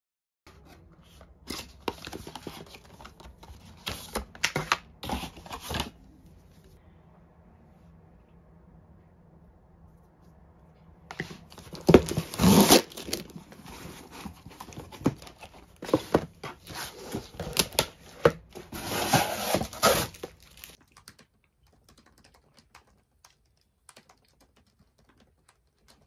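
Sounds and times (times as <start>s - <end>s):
cardboard rustling and scraping: 0.5s - 6.0s, 11.1s - 20.8s
packing tape tearing: 11.7s - 13.4s, 18.7s - 20.8s.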